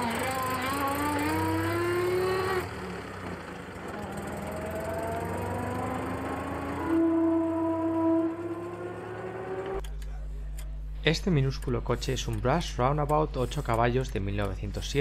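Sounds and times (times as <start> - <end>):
car engine accelerating: 0.0 - 9.8.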